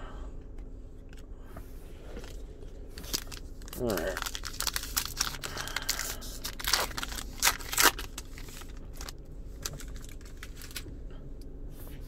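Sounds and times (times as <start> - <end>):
foil wrapper tearing and crinkling: 3.0 - 10.8.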